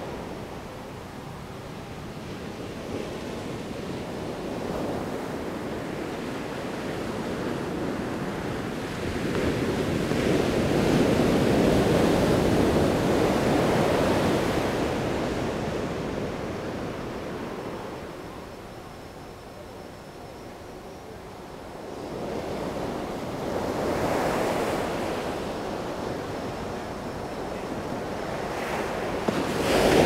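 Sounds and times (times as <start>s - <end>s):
waves breaking on sand: 22.4s - 30.0s.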